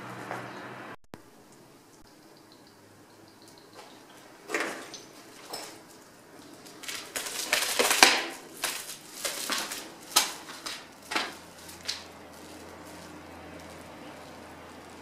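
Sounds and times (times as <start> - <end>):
footsteps crunching on rubble: 3.8 - 15.0.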